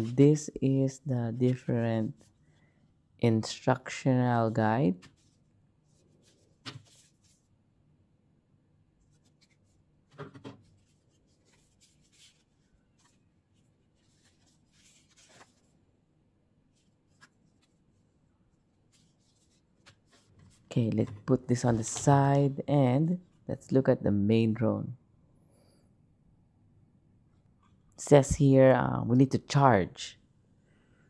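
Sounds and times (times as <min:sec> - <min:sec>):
paper rustling: 0:05.0 - 0:07.5, 0:09.0 - 0:15.8, 0:16.7 - 0:18.0, 0:18.8 - 0:23.3.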